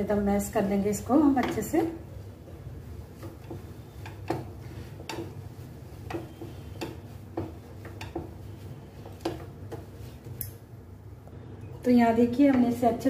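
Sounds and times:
potato masher knocking on pan: 0:03.1 - 0:09.9.

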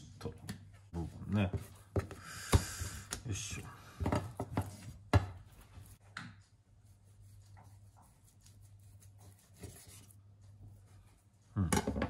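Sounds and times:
soft rubbing of raw meat: 0:05.5 - 0:11.4.

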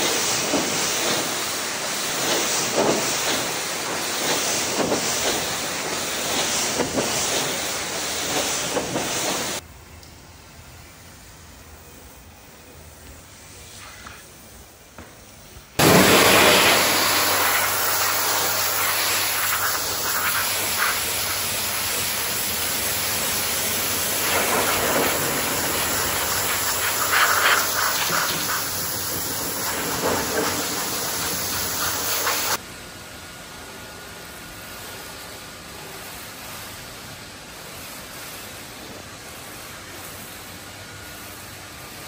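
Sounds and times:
pressure washer spraying water: 0:00.0 - 0:09.6, 0:15.8 - 0:32.6
quieter steady hiss: 0:00.0 - 0:42.0.

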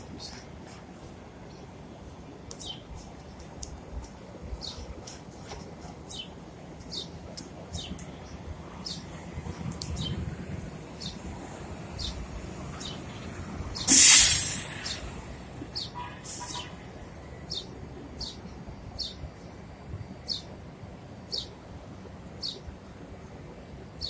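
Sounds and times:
bus engine rumble: 0:00.0 - 0:24.0
air brake hiss: 0:13.8 - 0:16.7
short high falling chirps: 0:13.9 - 0:15.1.

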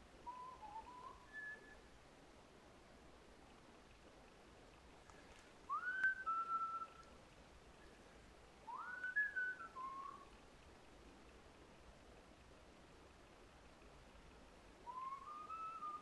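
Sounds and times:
person whistling: 0:00.3 - 0:01.8, 0:05.7 - 0:07.0, 0:08.7 - 0:10.2, 0:14.9 - 0:16.0.

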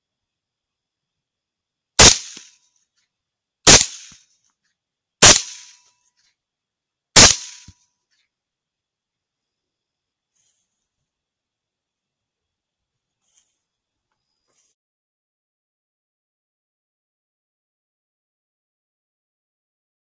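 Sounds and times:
rifle shots: 0:02.0 - 0:02.5, 0:03.7 - 0:04.2, 0:05.2 - 0:05.8, 0:07.2 - 0:07.7.

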